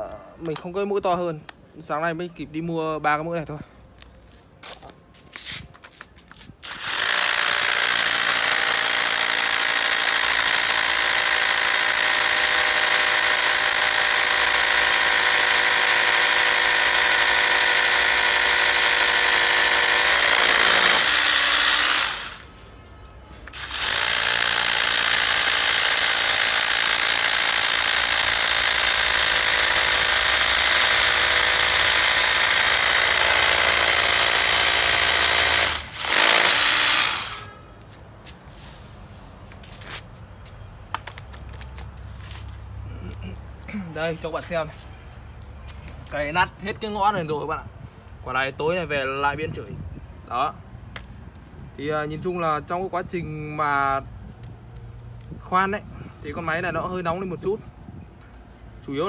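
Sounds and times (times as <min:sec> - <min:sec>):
rotary hammer drilling into concrete: 0:06.6 - 0:22.5, 0:23.5 - 0:37.6.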